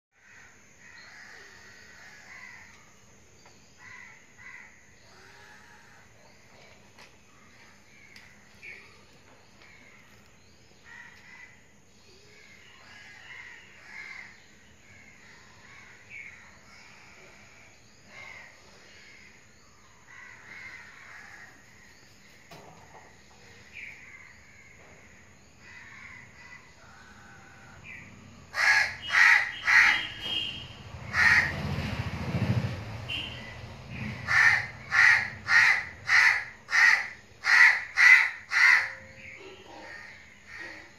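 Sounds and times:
birds calling: 0.2s - 40.9s.

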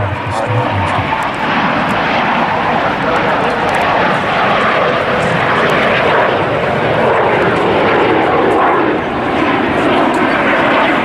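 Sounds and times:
jet engines overhead: 0.0s - 11.0s.

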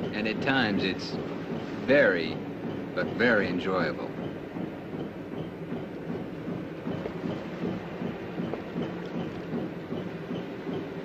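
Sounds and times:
boat engine rumbling: 0.0s - 11.0s
faint regular ticking: 0.0s - 11.0s.

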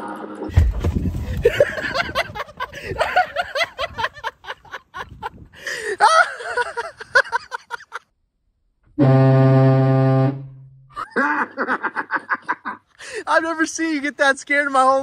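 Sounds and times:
low air horn blast: 8.9s - 10.9s.

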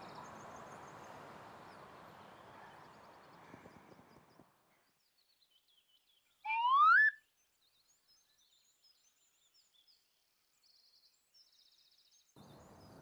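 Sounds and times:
faint bird chirps: 0.0s - 13.0s
rising whistle-like tone: 6.5s - 7.2s.

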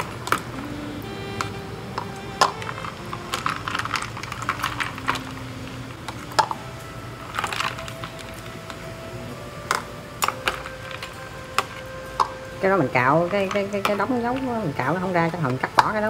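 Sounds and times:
soft background music: 0.0s - 16.0s
water and ice sloshing: 2.4s - 6.6s.

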